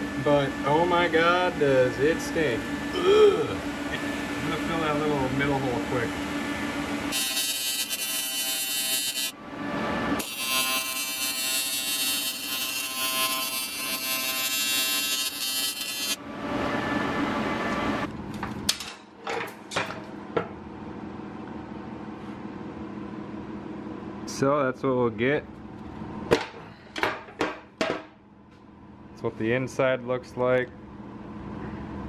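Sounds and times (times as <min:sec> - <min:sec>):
welding arc buzzing: 0:06.9 - 0:09.4, 0:10.2 - 0:16.2.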